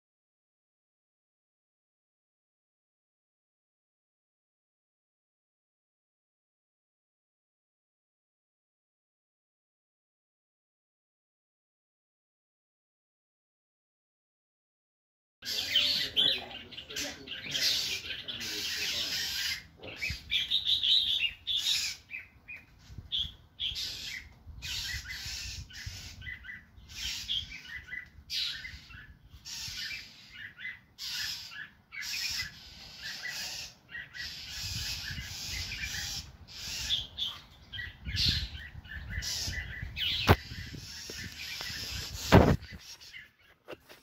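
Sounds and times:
songbirds rough alarm calls: 15.4 - 43.6.

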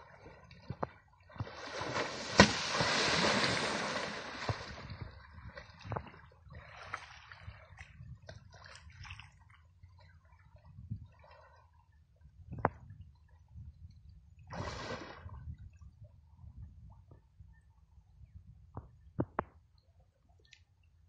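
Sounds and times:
elephant splashing in water: 1.4 - 5.0.

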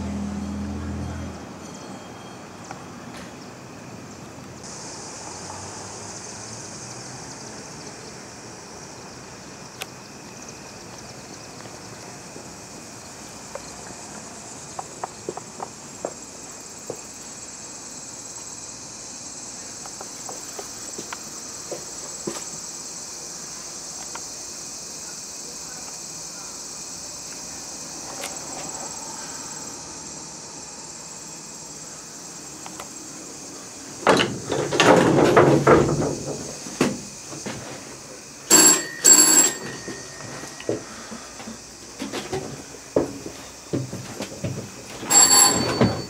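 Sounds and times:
crickets chirring: 0.0 - 46.0
signal bell ringing: 0.4 - 2.6, 38.5 - 40.6, 45.1 - 46.0
footsteps: 39.6 - 46.0.

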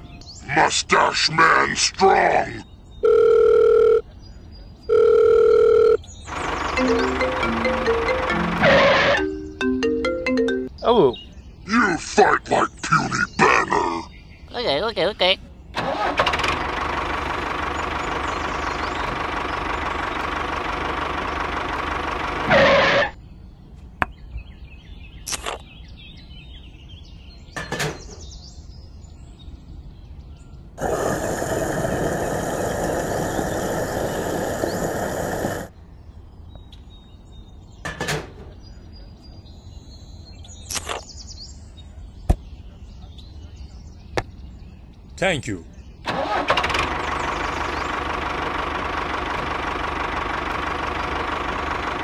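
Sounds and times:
tractor engine running: 6.2 - 10.7, 15.8 - 23.2, 30.8 - 35.7, 46.1 - 52.0.

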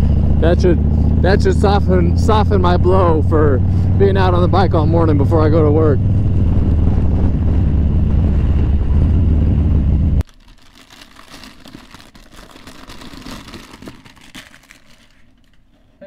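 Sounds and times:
motorcycle engine rumbling: 0.0 - 10.3.

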